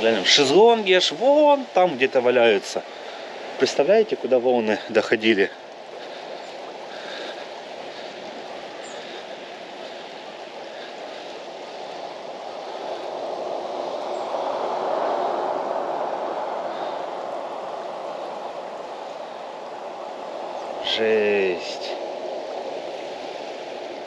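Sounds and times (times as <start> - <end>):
river water rushing: 0.0 - 24.0.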